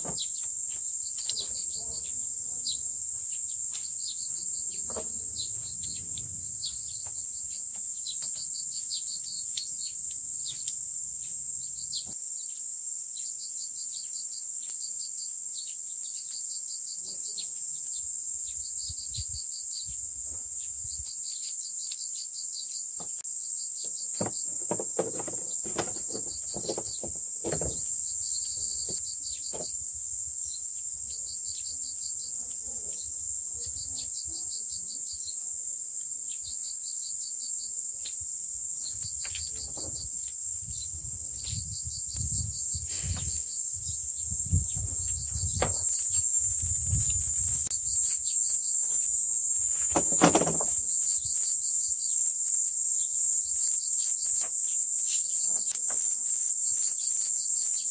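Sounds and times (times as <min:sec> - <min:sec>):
insect drone: 0:00.0 - 0:57.9
insect pulsed chirping: 0:00.1 - 0:57.9
plastic parts and wires rustling: 0:24.1 - 0:28.0.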